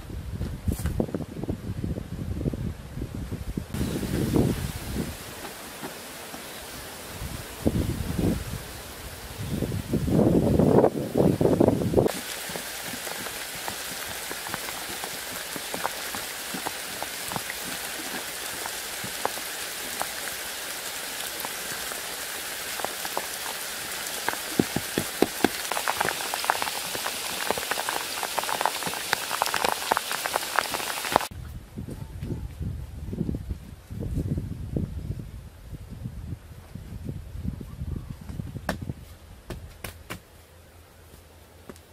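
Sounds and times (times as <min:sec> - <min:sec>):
steady rain falling: 0:03.7 - 0:31.3.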